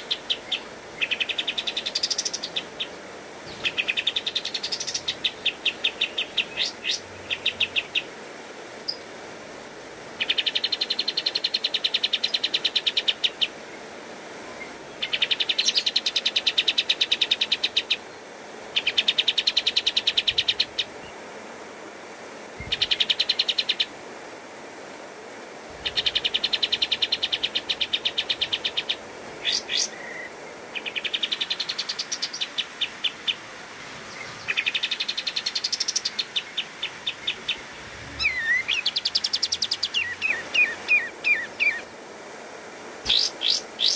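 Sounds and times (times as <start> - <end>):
bird chattering in fast bursts: 43.1 - 43.9.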